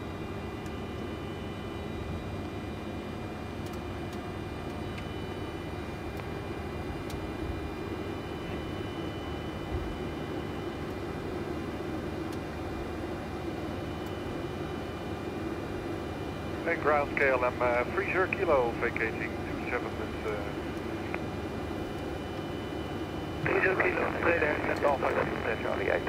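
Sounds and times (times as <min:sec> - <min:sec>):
faint high whine: 0:13.8 - 0:26.0
jet engine and airflow rush: 0:16.5 - 0:26.0.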